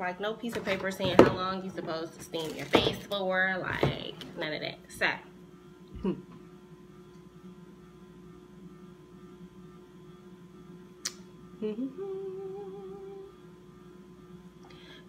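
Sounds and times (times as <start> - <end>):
electrical mains hum: 0.0 - 15.0
woman humming: 5.9 - 6.4, 11.5 - 13.4.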